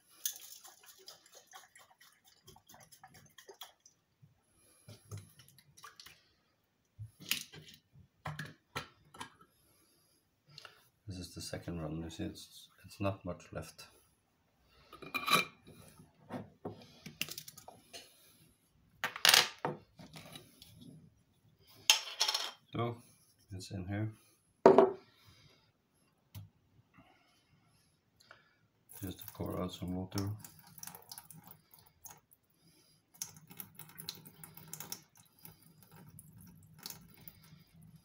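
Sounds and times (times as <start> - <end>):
water pouring into metal sink: 0.2 - 4.0, 28.9 - 32.2, 33.2 - 37.9.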